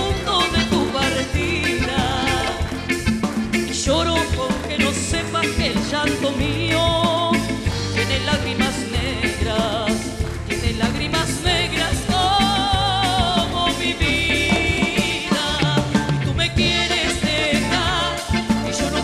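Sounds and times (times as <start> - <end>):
latin band playing: 0.0 - 19.0
woman singing: 0.0 - 19.0.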